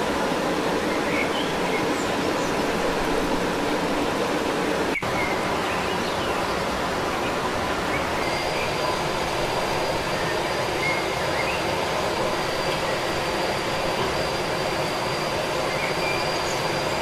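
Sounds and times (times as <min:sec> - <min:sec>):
running water rushing: 0:00.0 - 0:17.0.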